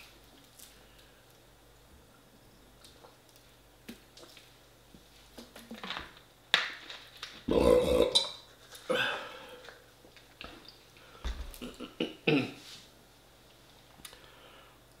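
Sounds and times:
man burping loudly: 0:07.5 - 0:09.1, 0:11.6 - 0:12.6.

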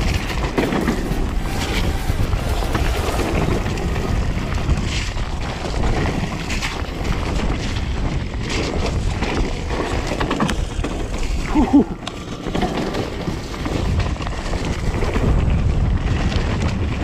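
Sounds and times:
bike tyres rushing on wet trail: 0:00.0 - 0:17.0
wind buffeting microphone: 0:00.0 - 0:17.0.

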